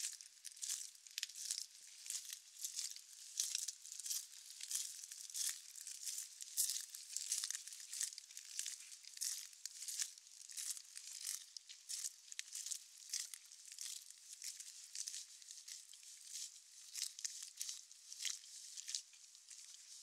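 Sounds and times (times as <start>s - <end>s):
footsteps on wet ground: 1.4s - 9.4s.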